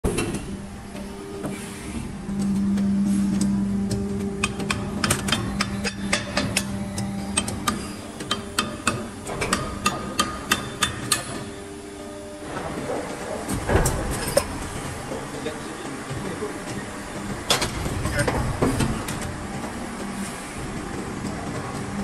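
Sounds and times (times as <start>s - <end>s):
machine humming: 0.0s - 22.0s
sharp irregular clicks and knocks: 2.3s - 11.5s.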